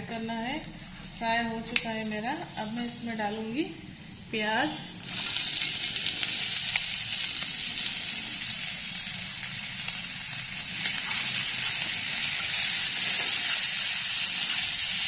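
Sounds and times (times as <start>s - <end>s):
onions sizzling in oil: 5.0s - 15.0s.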